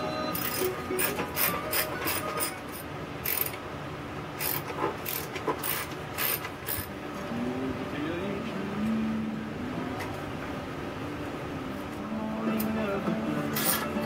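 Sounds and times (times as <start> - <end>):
ratchet wrench clicking: 0.4 - 3.6, 4.4 - 6.9, 13.6 - 13.9.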